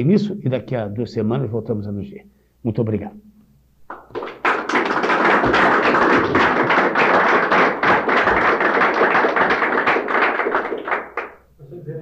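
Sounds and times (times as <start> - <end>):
audience applauding: 3.9 - 11.4.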